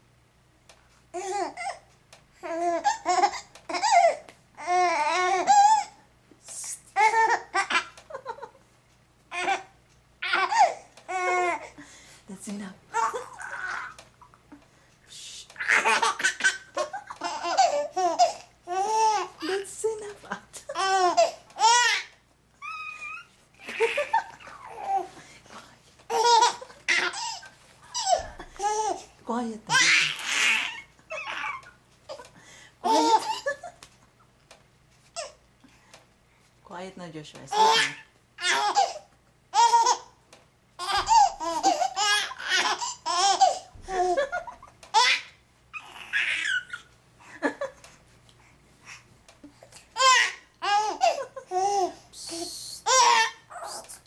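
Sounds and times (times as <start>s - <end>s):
baby laughing: 2.4s - 6.0s, 7.0s - 8.6s, 9.3s - 11.7s, 12.9s - 14.4s, 15.6s - 19.6s, 20.6s - 25.1s, 26.1s - 29.1s, 29.7s - 33.9s, 37.5s - 40.2s, 40.8s - 47.9s, 49.5s - 53.9s
baby squealing: 22.6s - 25.0s, 29.7s - 31.6s, 45.0s - 46.9s.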